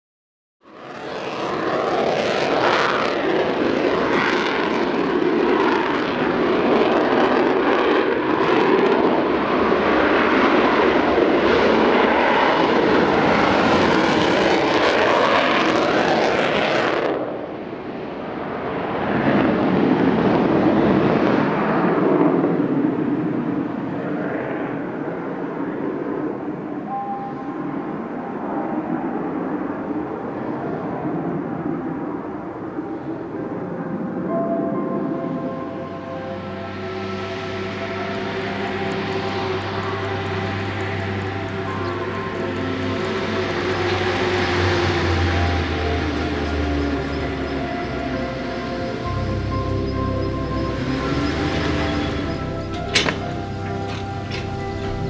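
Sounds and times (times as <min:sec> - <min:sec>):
jet engines running: 0:00.6 - 0:55.0.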